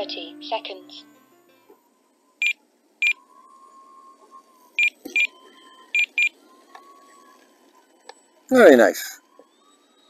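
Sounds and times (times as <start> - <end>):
faint steady whine: 0.0 - 10.0
short high electronic beeps: 4.8 - 6.4.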